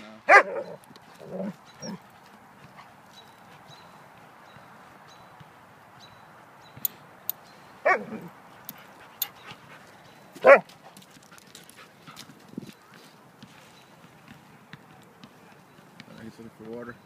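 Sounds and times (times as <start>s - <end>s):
dog barking: 0.3s - 0.8s, 7.8s - 8.2s, 10.4s - 10.6s.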